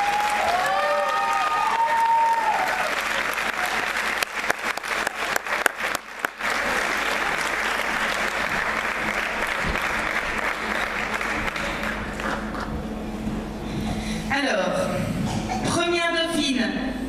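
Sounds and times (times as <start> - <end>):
crowd applauding: 0.0 - 12.8.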